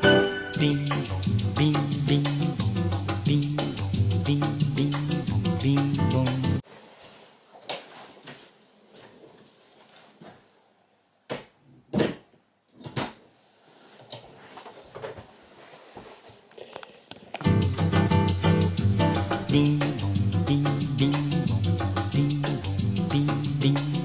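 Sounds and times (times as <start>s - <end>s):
soft rustling: 6.6s - 10.6s, 13.4s - 17.5s.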